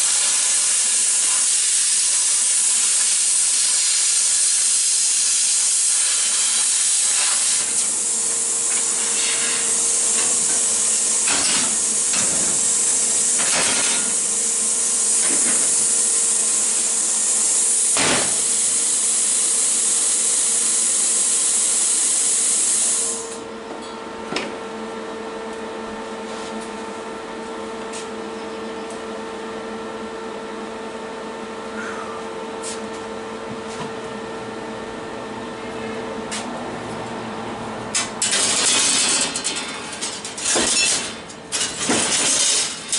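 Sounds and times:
steady hum: 0.0s - 19.6s
plasma cutter hissing: 0.0s - 23.2s.

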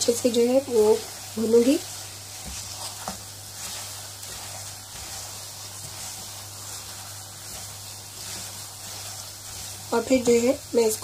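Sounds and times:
food sizzling in butter: 0.0s - 11.0s
wooden spoon stirring: 0.0s - 11.0s.

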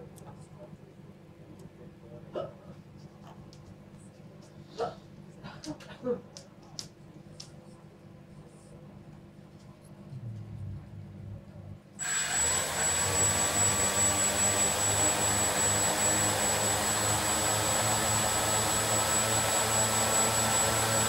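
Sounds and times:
quadcopter motors whirring: 12.0s - 21.0s.

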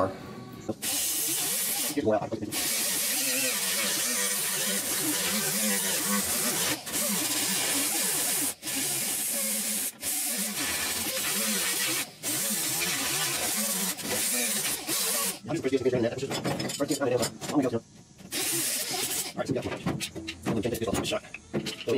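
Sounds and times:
air grinder grinding metal: 0.8s - 15.8s, 18.3s - 19.5s.

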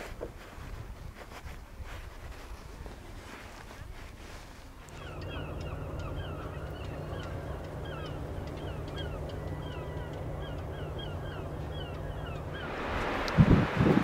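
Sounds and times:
wind noise on microphone: 0.0s - 4.8s, 12.5s - 14.0s
low steady hum: 4.6s - 14.0s
birds calling: 4.8s - 13.8s.

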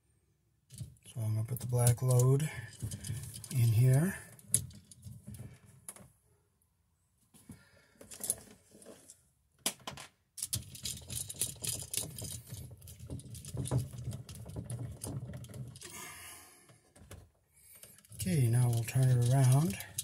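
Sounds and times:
faint handling clicks: 17.7s - 20.0s.

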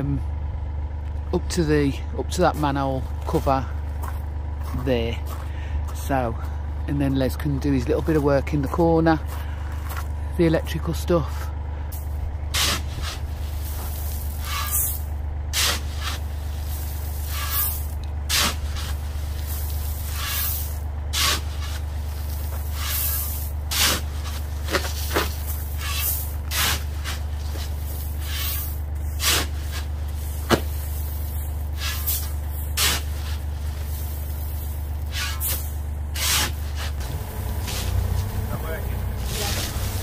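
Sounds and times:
low engine hum: 0.0s - 40.0s
shovel scooping gravel: 12.5s - 40.0s.

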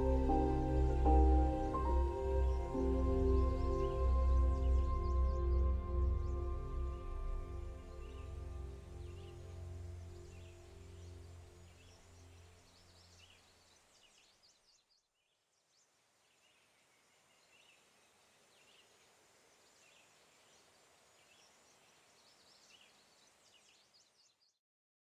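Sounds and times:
small birds chirping: 8.0s - 24.6s
soft hiss: 15.5s - 24.3s.

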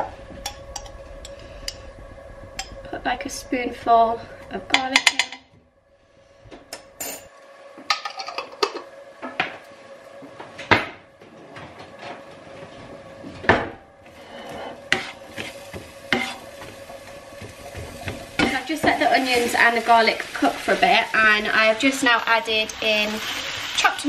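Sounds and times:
spatula scraping frying pan: 14.1s - 20.1s.

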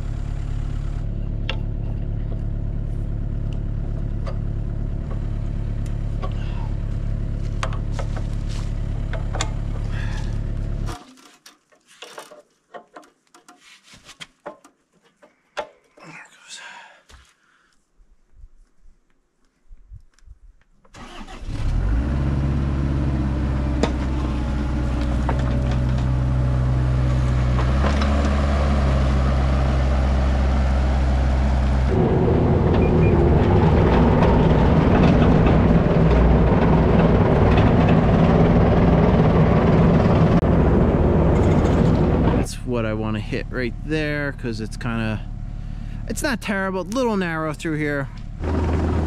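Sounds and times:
diesel engine running: 0.0s - 11.0s, 21.0s - 49.0s.

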